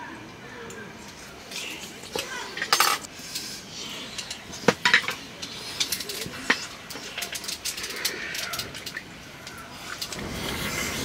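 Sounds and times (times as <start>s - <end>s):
utensils clinking against dishes: 2.2s - 9.0s.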